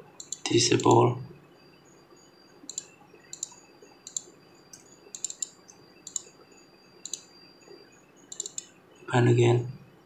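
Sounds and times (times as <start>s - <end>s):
computer mouse clicking: 0.2s - 0.9s, 2.7s - 6.4s, 7.0s - 7.3s, 8.3s - 8.7s.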